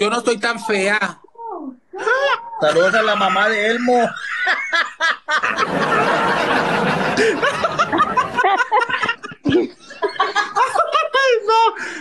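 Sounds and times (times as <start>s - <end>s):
people laughing: 2.0s - 11.7s.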